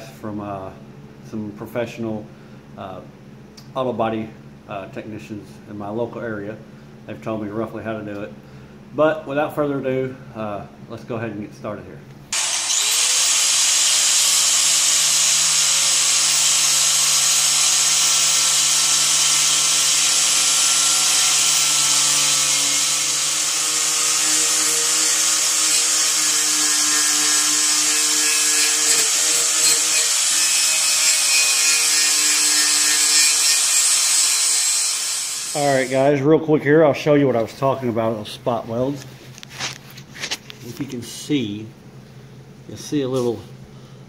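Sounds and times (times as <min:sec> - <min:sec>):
wire wheel grinder on sheet metal: 0:12.4 - 0:36.0.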